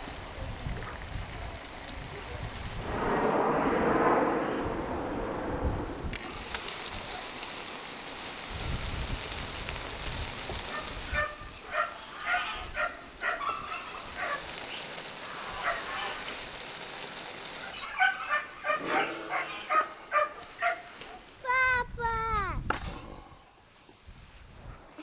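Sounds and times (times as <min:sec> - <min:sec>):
meat sizzling in a skillet: 0:00.0 - 0:02.9, 0:06.1 - 0:21.4.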